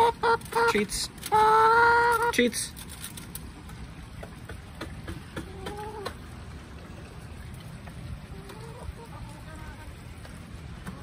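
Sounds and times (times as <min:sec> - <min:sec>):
hen calling: 0:00.0 - 0:02.5.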